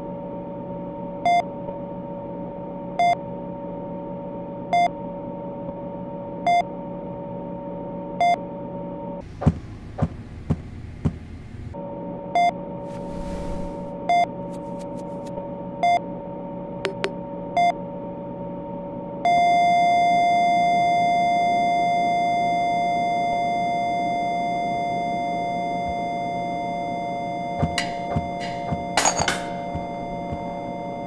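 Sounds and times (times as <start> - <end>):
steady low hum: 9.2 - 18.3, 23.8 - 31.0
flatline tone: 16.9 - 17.2, 22.8 - 31.0
heart monitor beeping: 25.8 - 26.3, 27.6 - 29.0, 29.6 - 31.0.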